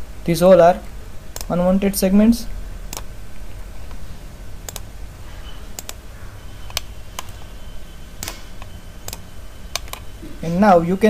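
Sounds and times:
low steady hum: 0.0s - 11.0s
computer mouse clicks: 1.3s - 1.5s, 4.6s - 4.9s, 5.8s - 6.0s, 6.7s - 7.5s, 8.2s - 10.1s.

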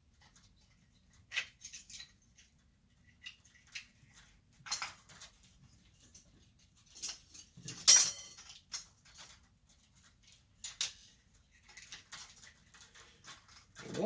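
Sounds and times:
metal parts clinking and scraping: 0.5s - 2.6s, 3.2s - 14.0s
metal clatter: 4.6s - 9.5s.

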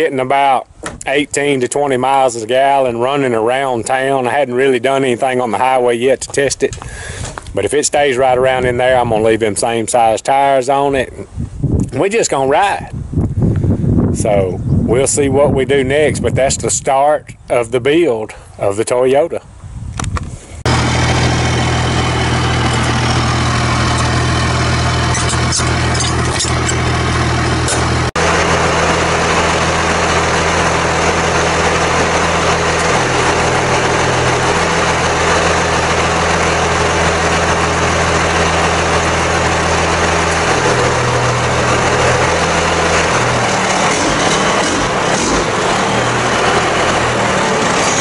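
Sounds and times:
vehicle engine idling: 0.7s - 10.1s, 20.6s - 48.0s.

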